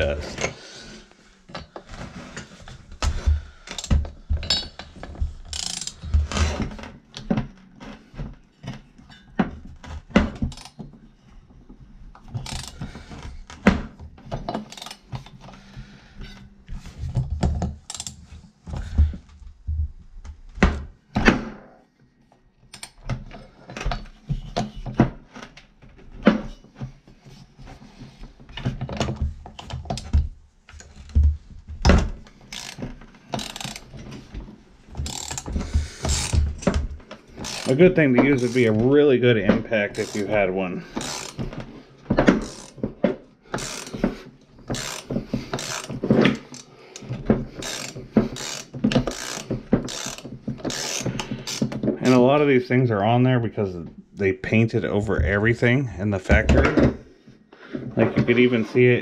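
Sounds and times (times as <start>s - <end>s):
wrench clicking and knocking on metal: 3.7s - 6.3s, 10.3s - 10.8s, 12.4s - 12.9s, 14.4s - 15.3s, 17.4s - 18.2s, 22.7s - 23.0s, 32.4s - 34.0s, 35.0s - 37.8s, 41.0s - 41.5s, 42.2s - 42.9s, 43.5s - 44.1s, 44.7s - 51.9s.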